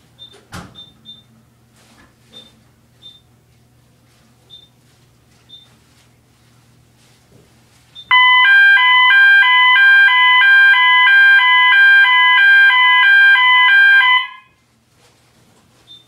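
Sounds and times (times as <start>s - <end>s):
fire alarm two-tone signal: 8.1s - 14.6s.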